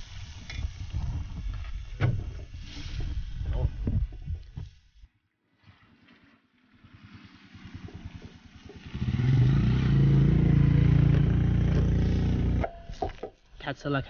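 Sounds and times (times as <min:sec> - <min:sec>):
small motorcycle engine passing: 0:05.8 - 0:12.7.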